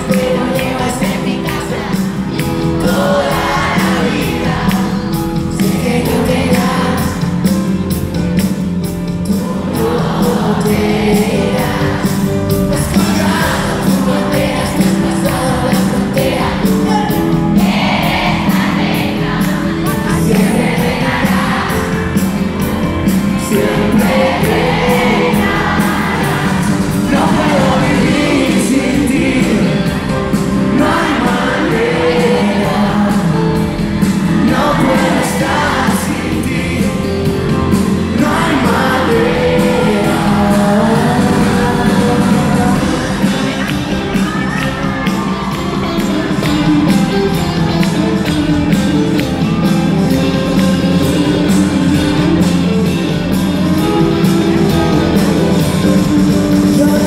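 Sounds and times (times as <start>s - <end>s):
man singing into microphone: 0.0s - 7.4s, 9.3s - 17.5s, 23.3s - 44.0s, 50.2s - 57.0s
audience voices: 0.0s - 57.0s
piano: 0.0s - 57.0s
steady beat: 0.0s - 57.0s.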